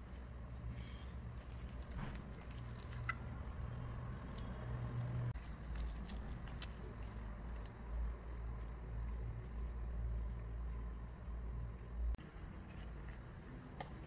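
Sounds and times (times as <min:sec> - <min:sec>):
steady low hum: 0:00.0 - 0:14.0
paper and tape crinkling: 0:00.5 - 0:03.2, 0:04.1 - 0:07.8.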